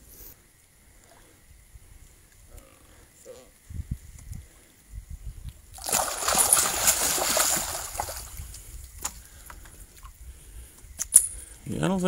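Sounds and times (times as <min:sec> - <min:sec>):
fish thrashing and splashing: 0:05.7 - 0:09.3.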